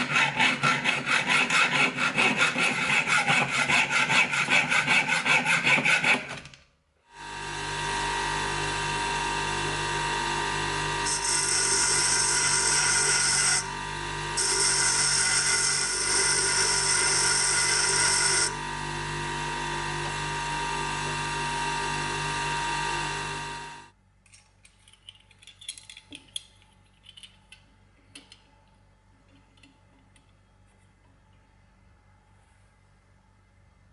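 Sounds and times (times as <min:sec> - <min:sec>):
hacksaw cutting brass: 0:00.0 - 0:06.4, 0:11.0 - 0:13.8, 0:14.4 - 0:18.6
bench grinder motor hum: 0:07.1 - 0:23.9.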